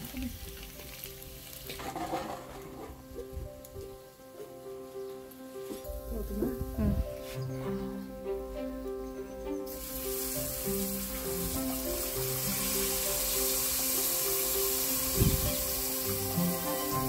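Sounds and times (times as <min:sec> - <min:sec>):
liquid sizzling in hot pot: 0:00.0 - 0:05.0, 0:09.7 - 0:17.0
background music: 0:00.0 - 0:17.0.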